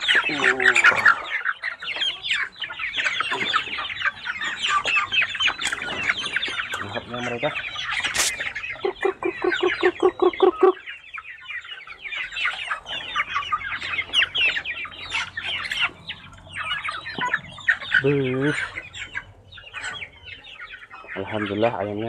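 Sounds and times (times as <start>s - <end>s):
young chickens peeping: 0.0s - 22.0s
low clucks: 3.1s - 10.9s.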